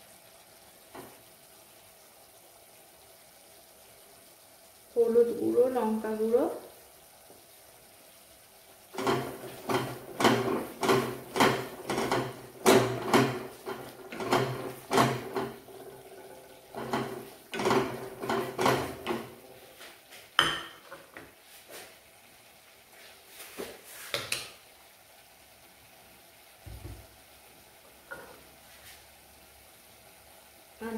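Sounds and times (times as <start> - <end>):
wooden spatula scraping a pan: 8.9 - 22.0, 22.9 - 24.4, 28.1 - 29.1.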